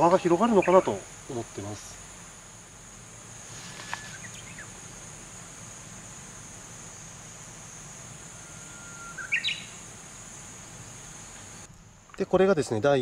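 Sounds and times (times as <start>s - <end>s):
insects chirping: 0.0s - 13.0s
short rising bird call: 8.3s - 9.8s.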